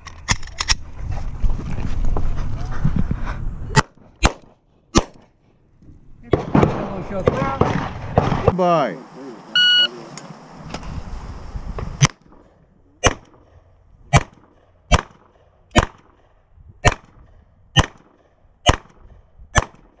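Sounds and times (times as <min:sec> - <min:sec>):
pistol shots: 0:12.0 - 0:20.0.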